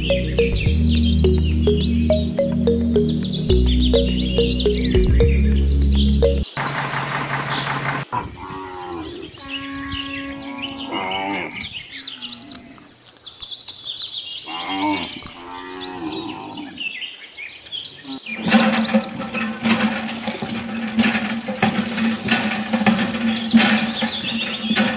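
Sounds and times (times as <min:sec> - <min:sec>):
birds chirping: 0:00.0 - 0:06.6, 0:07.3 - 0:20.4.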